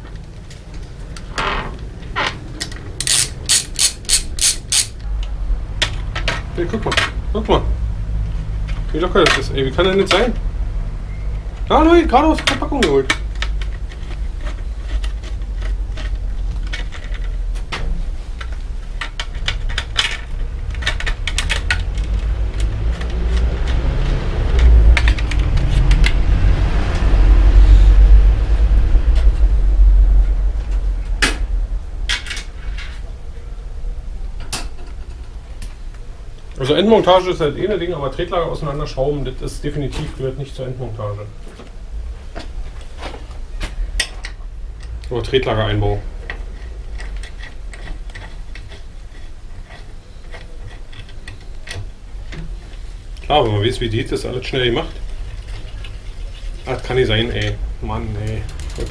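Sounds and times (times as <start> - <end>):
bicycle crank clicking and rumbling: 0.0 - 39.8, 43.8 - 58.9
metallic clinks of tools: 3.0 - 5.0.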